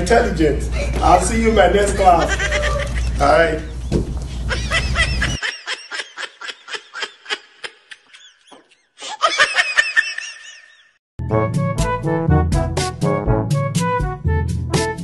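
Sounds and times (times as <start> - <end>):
high-pitched laughter: 2.0 - 3.4, 4.4 - 11.0
music: 11.2 - 15.0.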